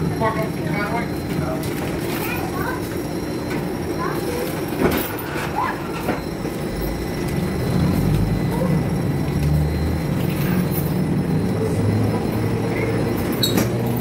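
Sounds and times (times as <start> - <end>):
streetcar rumbling on rails: 0.0 - 14.0.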